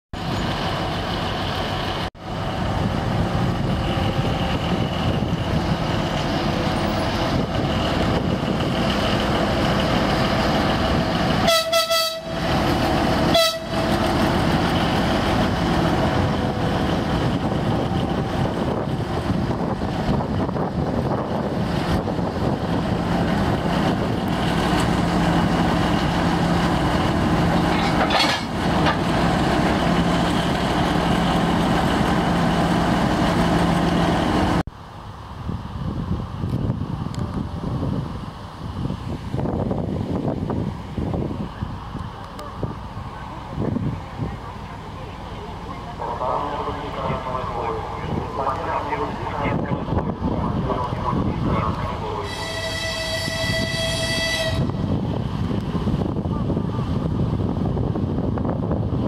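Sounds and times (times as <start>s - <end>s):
diesel locomotive engine running: 0.2s - 59.0s
locomotive horn blasts: 11.4s - 12.5s, 13.3s - 14.0s, 52.2s - 54.8s.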